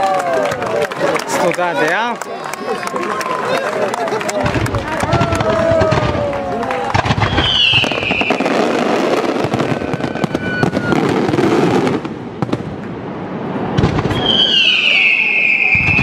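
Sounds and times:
fireworks bangs and crackles: 4.2 - 16.0
descending firework whistle: 5.1 - 12.0, 13.7 - 16.0.

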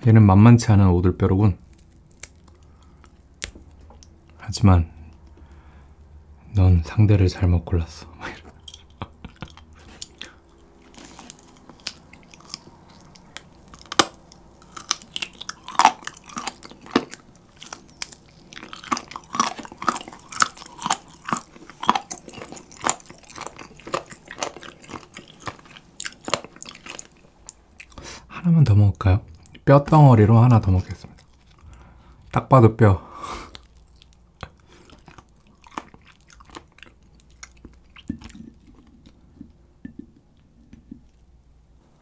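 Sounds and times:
chewing crispy fried chicken: 8.2 - 28.3, 30.3 - 32.4, 33.4 - 39.4.

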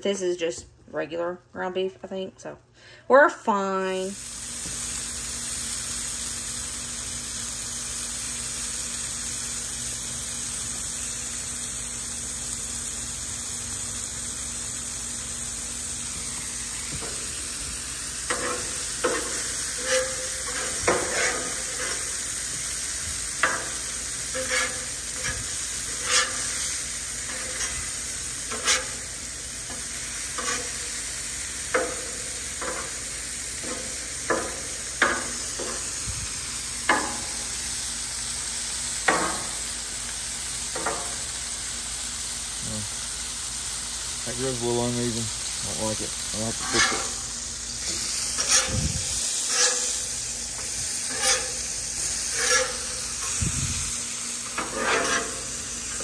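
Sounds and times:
meat sizzling in a frying pan: 3.9 - 56.0
utensil scraping a pan: 18.2 - 22.5, 23.4 - 29.1, 30.4 - 30.8, 46.5 - 53.4, 54.5 - 56.0.

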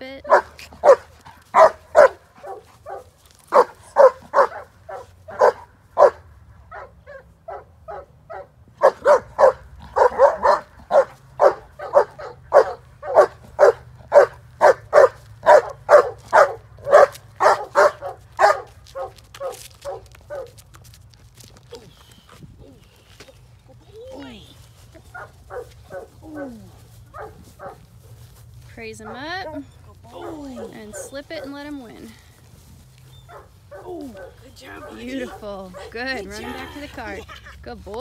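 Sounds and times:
dog barking: 0.3 - 20.6, 25.1 - 27.9, 29.1 - 31.6, 33.3 - 35.9.

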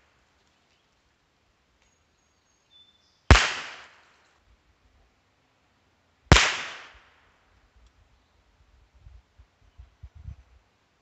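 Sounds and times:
rifle shots: 3.3 - 4.0, 6.3 - 7.0.

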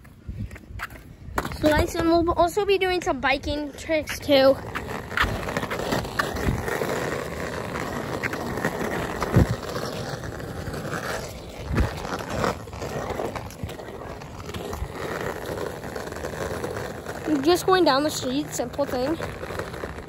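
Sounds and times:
skateboard wheels rolling on asphalt: 0.0 - 20.0.

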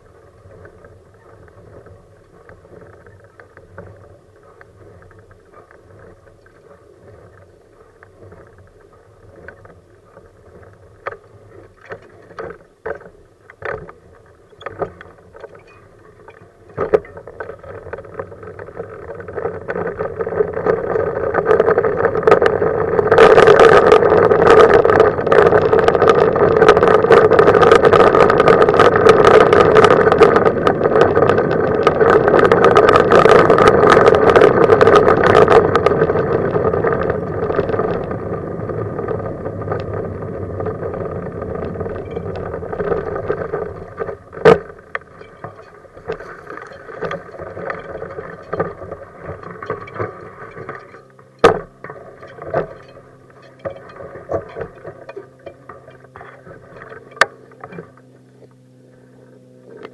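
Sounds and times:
wheelchair rolling on asphalt: 0.0 - 59.9
wind on microphone: 14.5 - 51.0.

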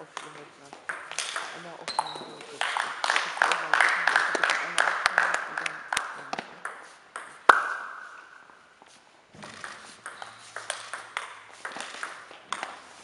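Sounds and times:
table tennis ball bouncing: 0.0 - 8.6, 9.3 - 12.9
sharp echoing ball click: 6.3 - 8.1.

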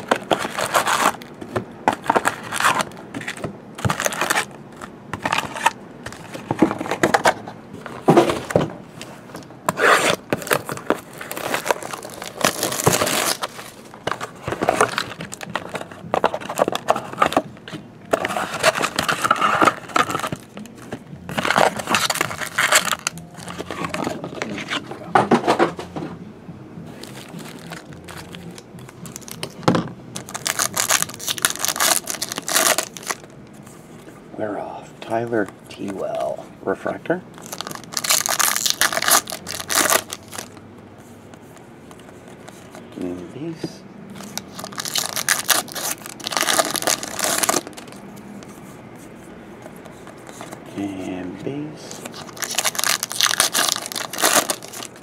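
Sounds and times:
foil wrappers crinkling: 0.0 - 6.2, 9.9 - 17.4, 21.3 - 24.8, 26.9 - 29.6, 30.2 - 33.3, 37.4 - 40.6, 44.2 - 48.0, 51.9 - 55.0
pack tearing open: 9.8 - 13.7, 21.4 - 24.8, 30.2 - 33.2, 37.4 - 40.6, 44.2 - 48.0, 52.0 - 55.0.

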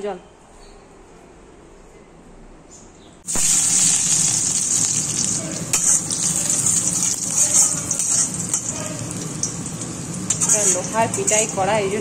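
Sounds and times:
oil sizzling in a pan: 3.3 - 12.0
metal spatula scraping a pan: 4.8 - 11.7.

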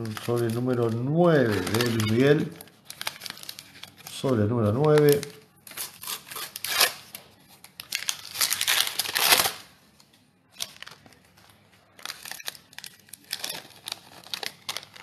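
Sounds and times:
stickers rustling and crackling: 0.0 - 6.7, 10.6 - 15.0
wrapper tearing open: 0.0 - 9.8, 10.5 - 15.0.

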